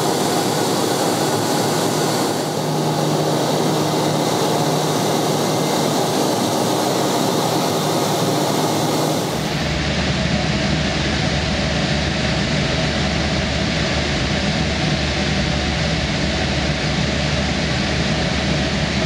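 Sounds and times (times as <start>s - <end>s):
rush of air: 0.0s - 10.0s
turboprop engine and propeller drone: 0.0s - 19.0s.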